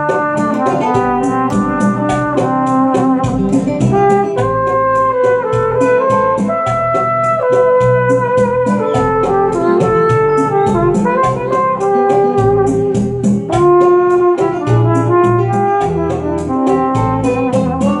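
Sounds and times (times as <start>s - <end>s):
backing track with steady beat: 0.0s - 18.0s
trumpet playing slow melody: 0.0s - 18.0s.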